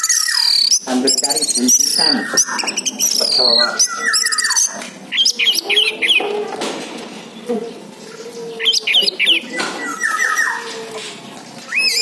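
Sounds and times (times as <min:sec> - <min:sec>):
thrush singing whistled notes: 0:00.0 - 0:06.2, 0:11.7 - 0:12.0.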